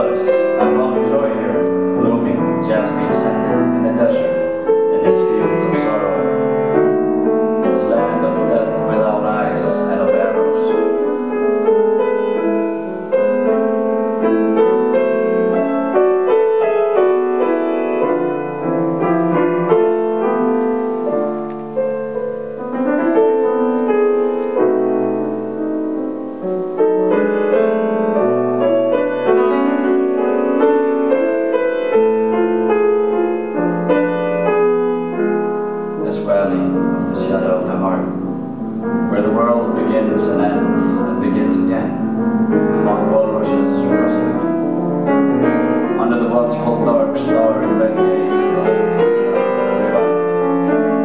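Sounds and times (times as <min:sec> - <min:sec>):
grand piano playing: 0:00.0 - 0:51.0.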